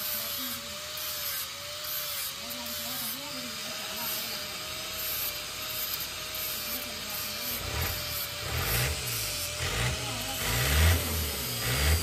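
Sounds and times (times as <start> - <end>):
tractor diesel engine revving: 7.6 - 12.0.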